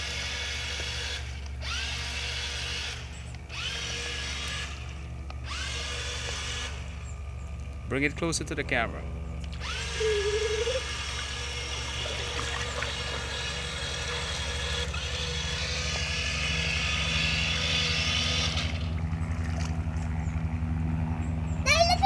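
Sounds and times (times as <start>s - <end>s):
low hum: 0.0s - 21.7s
electric motors whining: 0.0s - 22.0s
wheels churning water: 9.6s - 21.2s.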